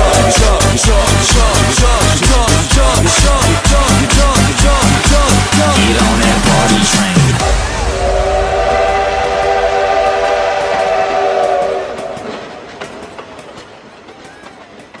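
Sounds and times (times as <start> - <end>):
train whistle chord: 0.0 - 1.3, 7.5 - 12.6
dance music: 0.0 - 8.4
train wheels clattering: 8.0 - 15.0.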